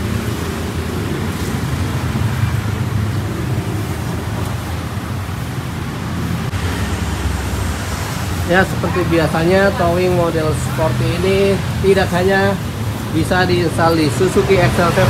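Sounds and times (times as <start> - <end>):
wind noise on microphone: 0.0 - 8.5
low engine hum: 0.0 - 15.0.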